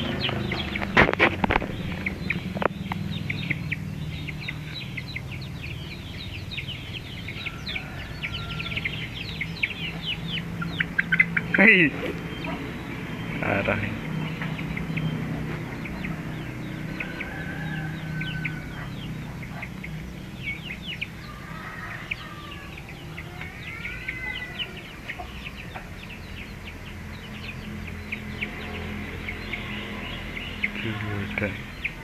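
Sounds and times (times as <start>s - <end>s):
birds chirping rapidly: 0.0s - 32.0s
birds long arching calls: 0.0s - 32.0s.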